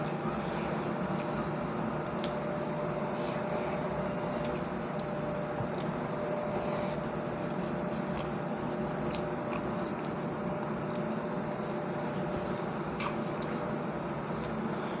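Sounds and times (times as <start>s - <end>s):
steady background hum: 0.0s - 15.0s
mouth chewing: 9.0s - 13.6s.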